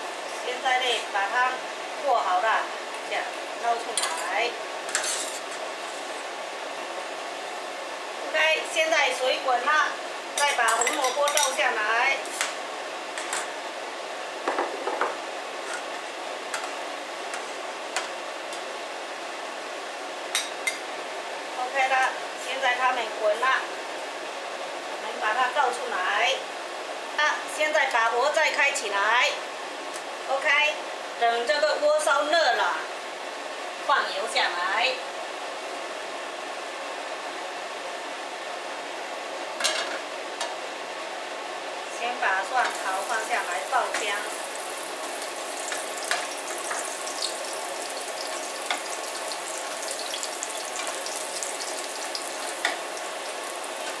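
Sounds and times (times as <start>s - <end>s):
pan scraping on burner grate: 4.9s - 6.3s
boiling water hiss: 41.9s - 54.0s.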